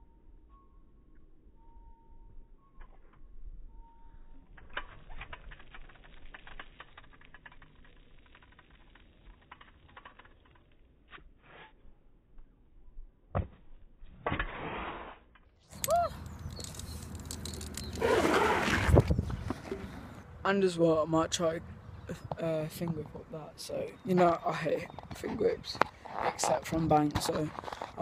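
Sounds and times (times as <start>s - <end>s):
scooter wheels rolling on concrete: 15.7s - 20.3s, 21.3s - 28.0s.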